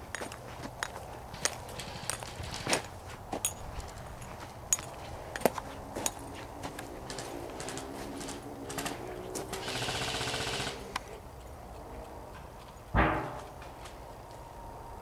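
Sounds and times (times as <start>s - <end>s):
airsoft gun full-auto rattle: 1.4s - 2.7s, 7.1s - 10.9s.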